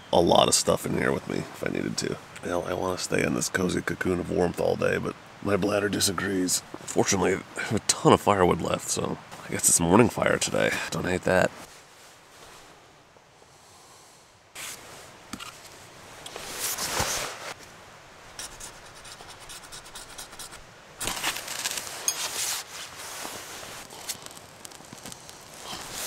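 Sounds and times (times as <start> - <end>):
wood scraping on wood and metal: 21.1 - 26.0.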